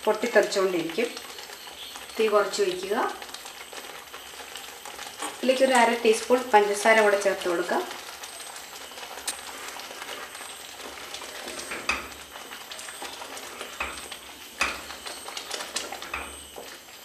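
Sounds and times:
curry bubbling and sizzling: 0:00.0 - 0:17.0
spatula scraping a pan: 0:08.3 - 0:16.8.

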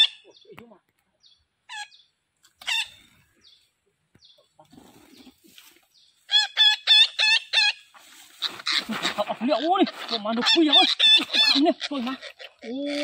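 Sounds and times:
parakeets squawking: 0:06.3 - 0:13.0.

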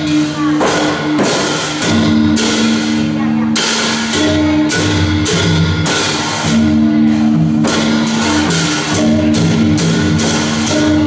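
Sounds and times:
barrel drum beat: 0:00.0 - 0:11.0
hand cymbals clashing: 0:00.0 - 0:11.0.

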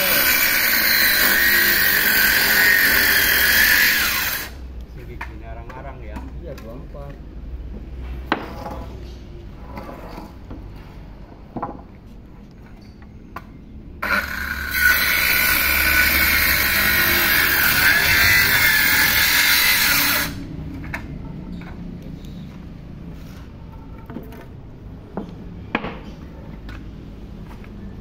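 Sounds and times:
circular saw cutting wood: 0:00.0 - 0:04.6, 0:14.0 - 0:20.5.

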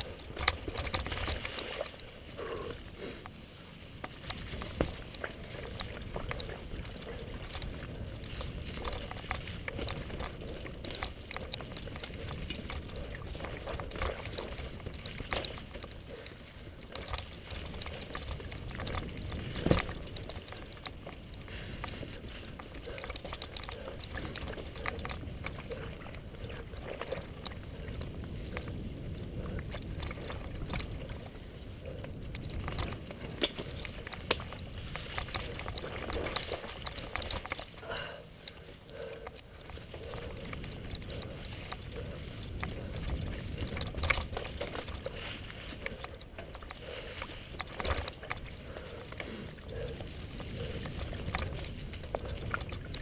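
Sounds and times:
bike clicks and rattles: 0:00.0 - 0:53.0
bike tyres rumbling on dirt: 0:00.0 - 0:53.0.

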